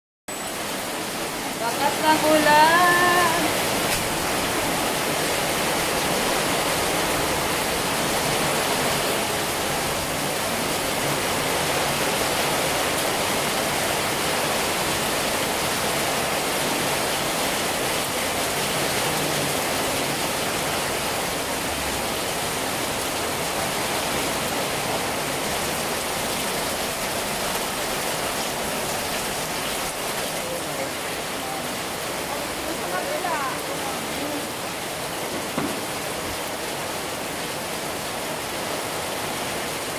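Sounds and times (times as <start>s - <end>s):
heavy rain on road: 0.3s - 39.9s.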